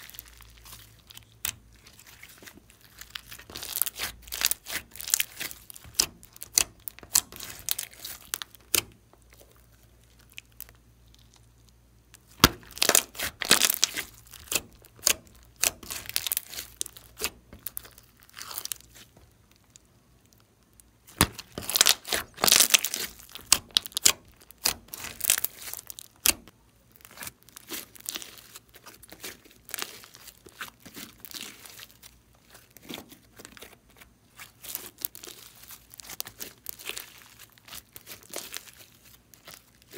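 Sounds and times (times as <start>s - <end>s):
slime crackling and popping: 0.0s - 39.9s.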